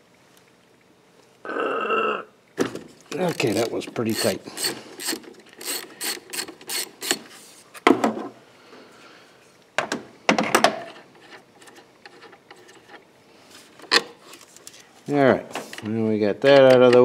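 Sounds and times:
ratchet wrench clicking: 3.2 - 7.2.

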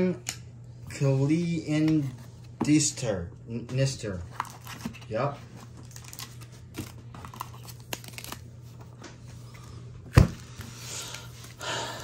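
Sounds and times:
cards and wrapper crinkling: 4.3 - 8.8.

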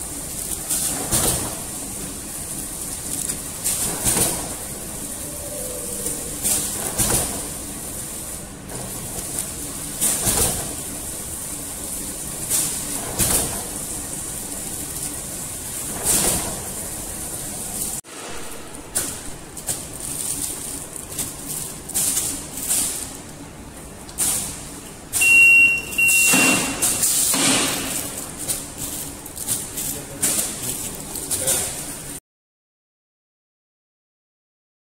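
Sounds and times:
packing machine hum and hiss: 0.0 - 32.2
metal detector alarm beeps: 25.2 - 27.0
machine double stroke: 25.2 - 28.2.

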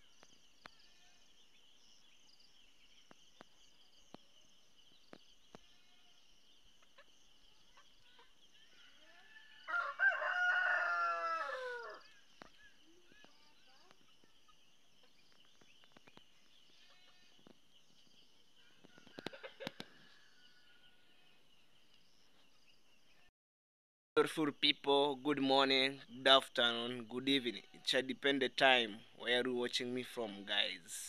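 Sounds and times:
rooster crowing: 8.9 - 12.2, 18.8 - 21.1.

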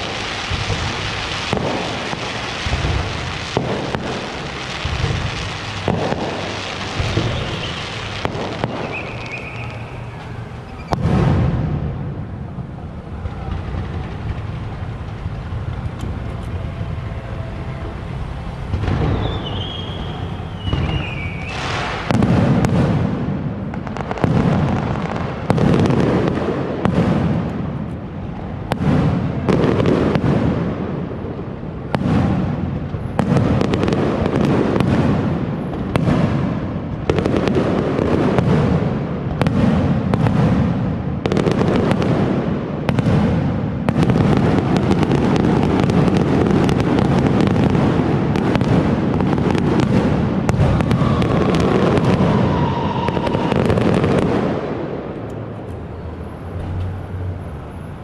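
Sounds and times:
firework shells bursting: 0.0 - 11.5, 18.7 - 30.5
continuous rumble: 0.0 - 58.0.

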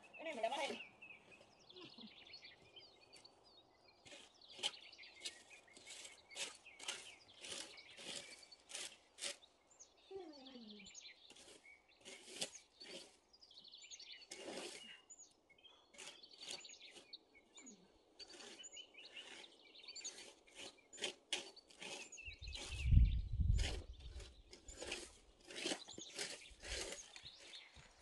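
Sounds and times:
scratchy rustling: 4.0 - 9.5, 11.2 - 13.2, 14.0 - 15.0, 15.9 - 17.2, 18.2 - 28.0.

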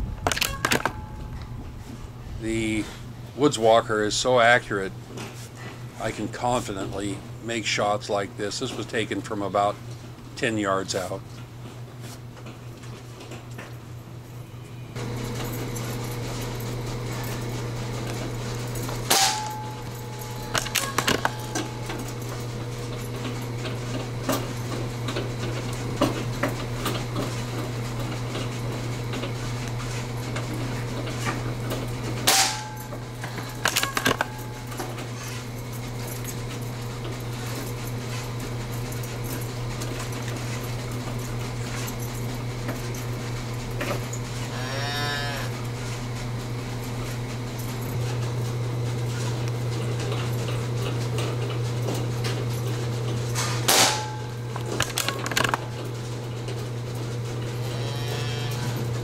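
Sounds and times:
steady low hum: 0.0 - 59.0
sharp metallic clank: 19.1 - 19.8, 32.2 - 32.9.

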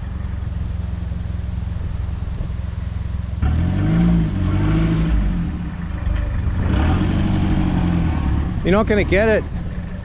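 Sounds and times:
engine revving: 3.4 - 10.0.

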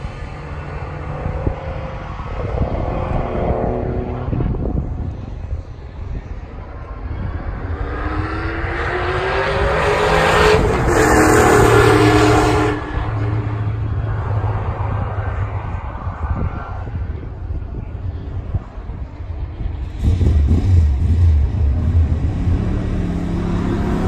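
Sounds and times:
racing car engines at high revs: 0.0 - 4.9, 7.0 - 16.8, 19.8 - 24.0.

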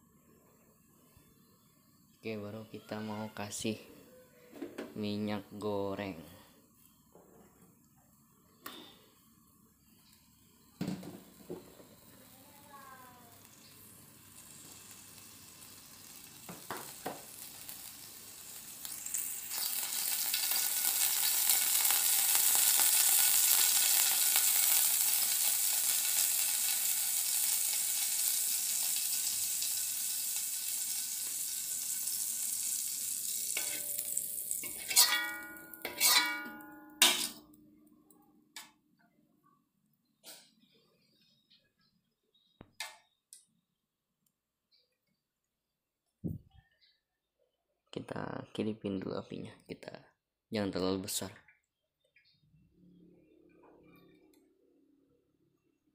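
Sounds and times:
oil sizzling in a wok: 9.0 - 37.4
sharp sounds with ringing tone: 33.5 - 38.3.

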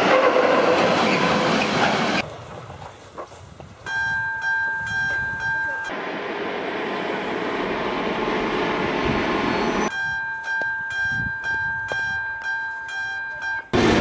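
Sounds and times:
level crossing warning bell: 3.9 - 6.0, 9.8 - 13.8.

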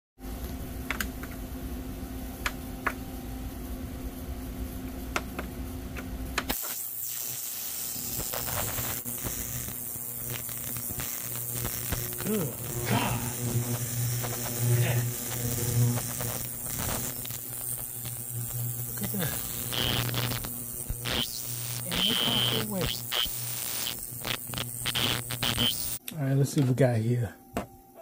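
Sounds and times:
ultrasonic cleaner buzzing: 4.8 - 26.0
water hissing in tank: 6.5 - 26.0.

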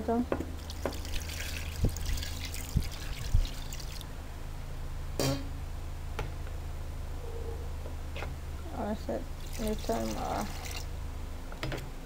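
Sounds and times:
water pouring into a metal pot: 0.6 - 4.0, 9.4 - 10.9.

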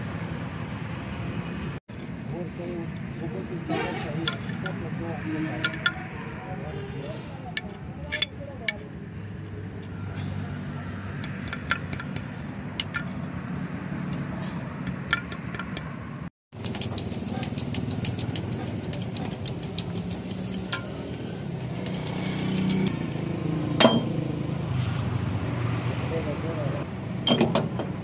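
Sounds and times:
low engine-like hum: 7.3 - 14.8
metallic clicks from handling parts: 7.6 - 9.9
sharp metal clank: 23.8 - 24.2, 27.2 - 27.9.

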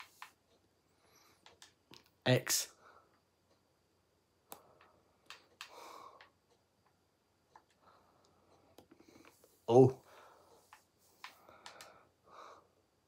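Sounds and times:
soft breath: 4.6 - 6.5, 7.7 - 13.0
faint clicks: 10.6 - 12.0.

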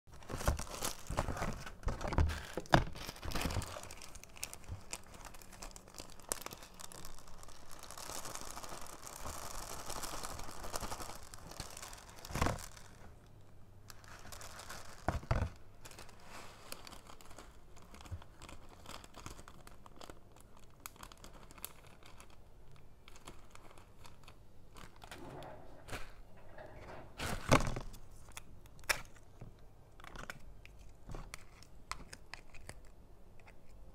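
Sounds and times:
plastic bags crinkling: 0.1 - 13.3, 13.9 - 29.3
foam beads pouring into tub: 3.8 - 13.0.

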